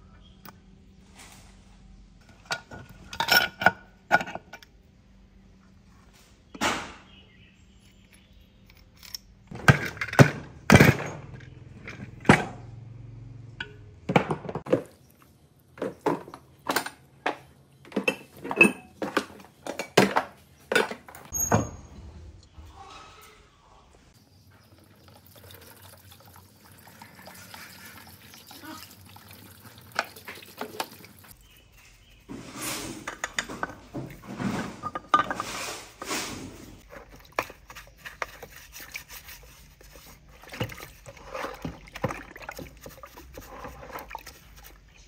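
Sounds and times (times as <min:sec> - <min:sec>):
metal engine parts clinking: 0:02.4 - 0:04.7, 0:08.1 - 0:12.5.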